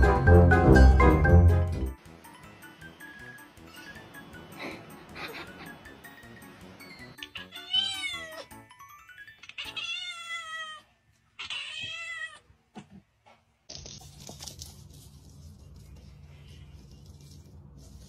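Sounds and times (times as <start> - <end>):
cat meowing loudly: 7.2 - 8.5, 9.5 - 12.5
low room noise: 9.4 - 18.0.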